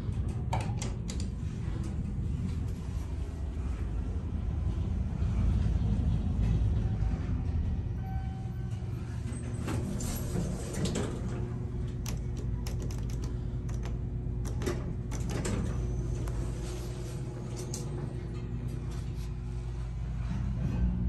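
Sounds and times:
elevator humming: 0:00.0 - 0:21.0
elevator buttons tapped: 0:11.8 - 0:16.4
sharp clicks and knocks: 0:11.9 - 0:15.7.

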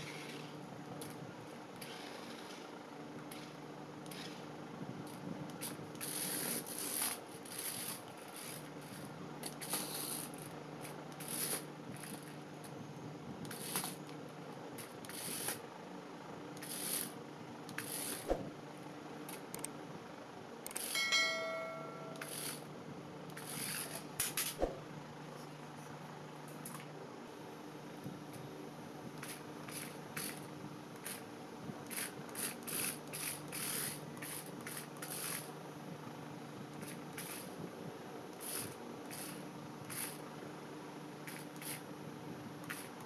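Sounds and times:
toy car electric motors whirring: 0:00.0 - 0:01.2, 0:03.3 - 0:04.4, 0:05.1 - 0:12.4, 0:13.4 - 0:14.1, 0:14.8 - 0:15.6, 0:16.6 - 0:18.3, 0:23.3 - 0:24.6, 0:29.2 - 0:35.6, 0:36.7 - 0:37.6, 0:38.3 - 0:40.2, 0:41.2 - 0:41.9, 0:42.6 - 0:43.0
brief electronic tone: 0:20.9 - 0:22.6.

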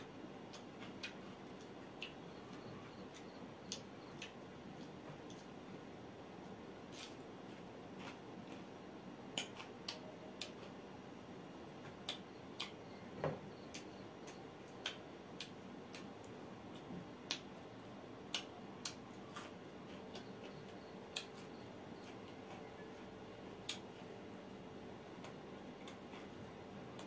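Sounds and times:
man chewing: 0:00.0 - 0:05.8, 0:06.4 - 0:10.8, 0:13.6 - 0:24.2, 0:25.1 - 0:27.0
short sharp clicks and smacks: 0:09.3 - 0:10.7.

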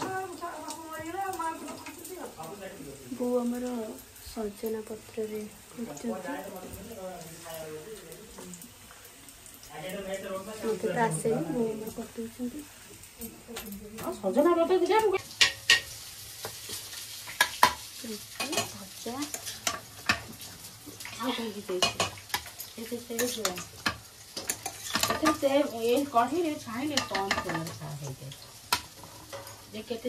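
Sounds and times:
spoons clinking on steel plates: 0:13.2 - 0:20.4, 0:21.0 - 0:27.8.

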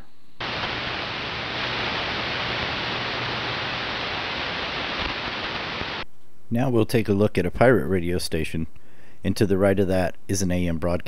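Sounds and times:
radio static hiss: 0:00.0 - 0:06.0.

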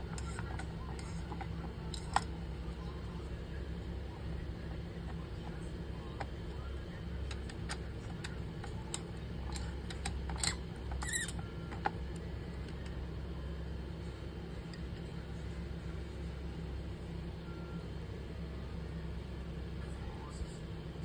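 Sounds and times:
small clicks and scrapes: 0:00.0 - 0:02.3, 0:07.2 - 0:13.0
steady low hum: 0:00.0 - 0:21.0.

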